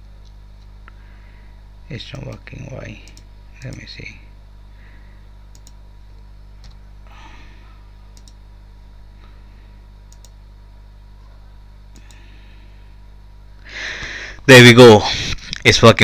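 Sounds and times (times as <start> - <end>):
low electrical hum: 0.0 - 16.0
computer mouse clicks: 3.0 - 3.8, 5.5 - 5.8, 8.2 - 8.4, 10.1 - 10.4, 11.9 - 12.2.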